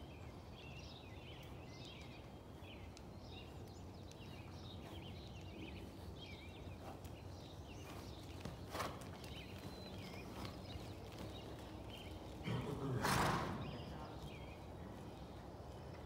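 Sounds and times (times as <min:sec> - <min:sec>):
muffled hoofbeats on sand: 0:00.8 - 0:15.9
horse snorting: 0:12.4 - 0:13.8.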